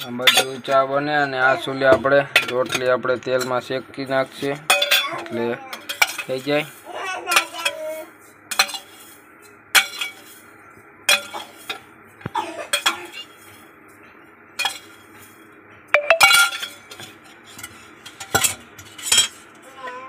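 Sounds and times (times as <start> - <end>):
metal spoon clinking against pot: 0.0 - 0.8, 4.6 - 5.1, 5.7 - 6.5.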